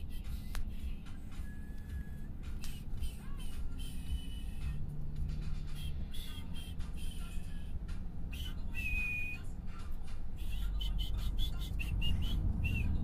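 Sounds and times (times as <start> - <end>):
car road rumble: 0.0 - 13.0
person whistling a tune: 5.7 - 7.5, 8.3 - 9.5, 10.4 - 13.0.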